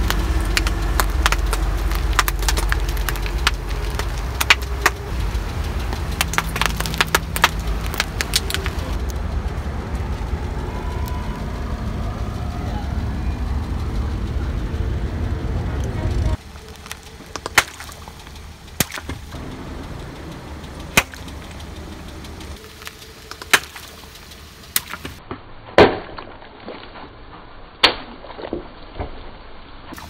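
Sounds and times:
sharp cracks and pops: 0:00.0 - 0:09.2, 0:16.4 - 0:19.4, 0:20.7 - 0:30.0
car tyre rolling on asphalt: 0:00.0 - 0:25.3.

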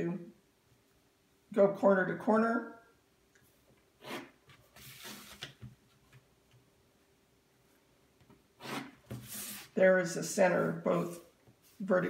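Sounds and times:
ruler scraping across paper: 0:04.0 - 0:05.6, 0:08.6 - 0:09.8.

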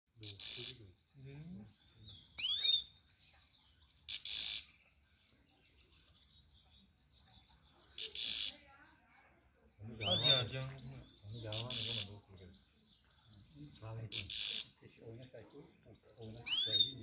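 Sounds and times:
harsh bird call: 0:00.2 - 0:01.0, 0:02.2 - 0:03.0, 0:04.1 - 0:04.8, 0:08.0 - 0:08.6, 0:09.9 - 0:12.4, 0:13.6 - 0:14.8, 0:16.2 - 0:17.0
goldfinch twittering: 0:00.2 - 0:03.0, 0:09.8 - 0:17.0.

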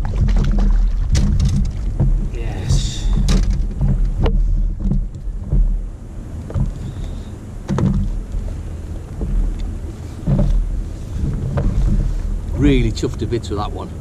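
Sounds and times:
knocks and bumps in boat: 0:00.0 - 0:14.0
low rumbling wind and water noise: 0:00.0 - 0:14.0.

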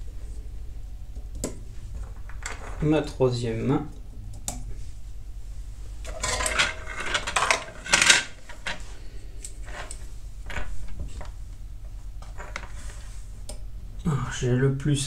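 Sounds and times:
steady low hum: 0:00.0 - 0:15.0
metal tools clinking on workbench: 0:06.1 - 0:08.8.

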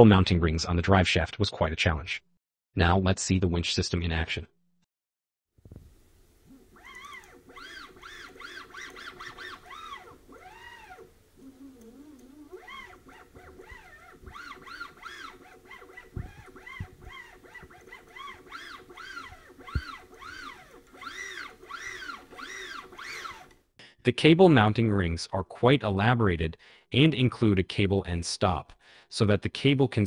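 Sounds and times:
stepper motor whine: 0:06.5 - 0:23.5
sharp clicks: 0:06.8 - 0:11.1.

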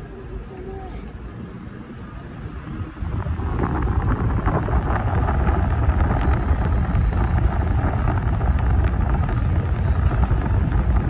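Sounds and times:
low road rumble: 0:00.0 - 0:11.0
wind buffeting microphone: 0:02.4 - 0:11.0.

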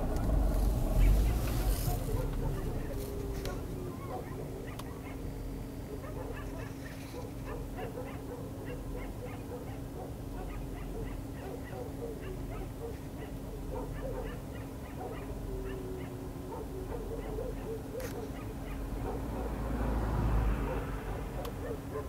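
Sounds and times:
low rumble: 0:00.0 - 0:04.0
dogs howling and yipping: 0:00.0 - 0:19.7, 0:20.6 - 0:22.0.

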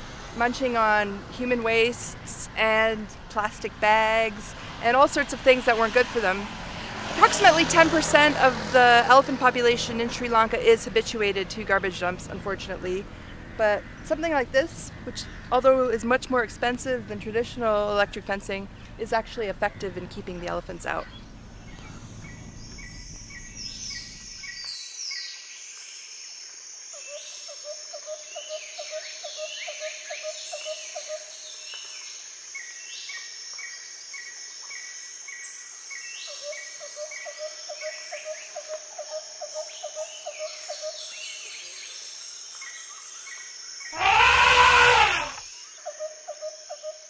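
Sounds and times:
birds chirping: 0:09.1 - 0:24.8
high insect drone: 0:42.2 - 0:47.0
loud animal call: 0:44.0 - 0:45.5
low pulsing animal call: 0:44.0 - 0:45.5.

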